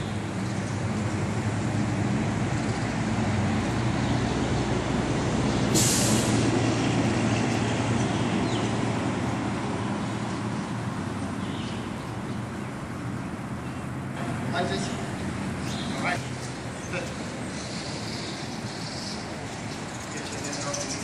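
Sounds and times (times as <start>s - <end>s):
sudden sharp hiss: 5.7s - 6.5s.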